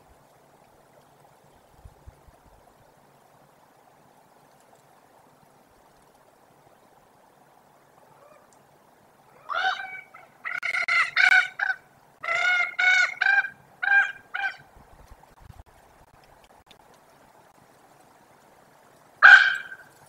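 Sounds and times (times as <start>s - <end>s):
ravens honking calls: 9.3s - 14.7s, 19.2s - 20.0s.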